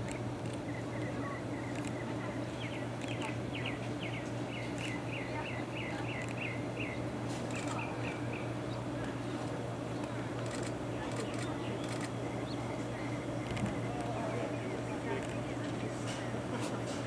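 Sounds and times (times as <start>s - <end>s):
steady low hum: 0.0s - 17.0s
bird chirping: 0.1s - 8.8s.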